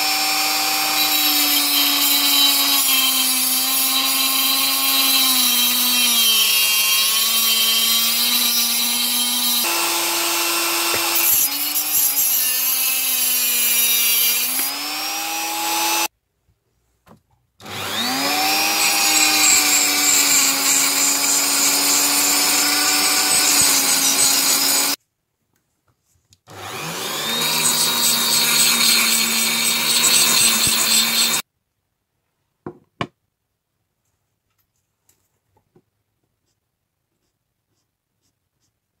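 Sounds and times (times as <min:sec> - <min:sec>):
rotary tool cutting steel: 0:00.0 - 0:16.1, 0:17.6 - 0:25.0, 0:26.5 - 0:31.4.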